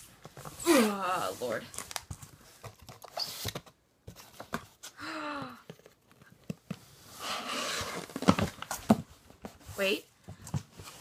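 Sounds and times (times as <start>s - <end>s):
cardboard box being opened: 5.8s - 9.0s.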